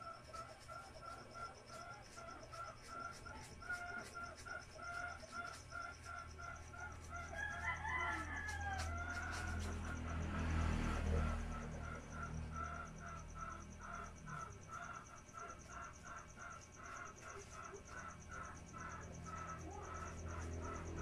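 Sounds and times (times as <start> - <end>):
rooster crowing: 6.7 - 16.0.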